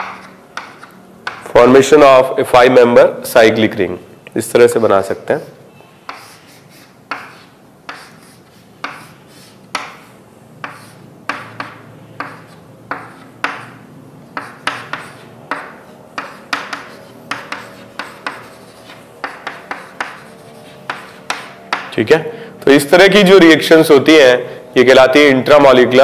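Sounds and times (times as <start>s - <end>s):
handwriting scratchy strokes: 6.0s - 21.9s.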